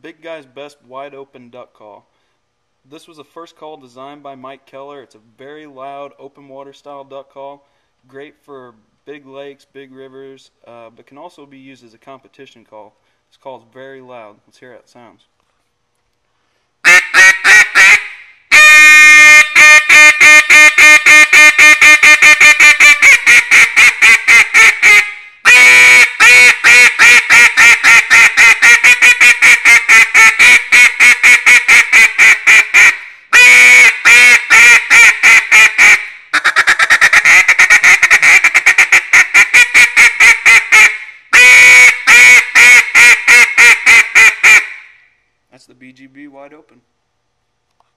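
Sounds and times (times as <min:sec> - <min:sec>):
duck call quacks: 0:16.8 - 0:45.0.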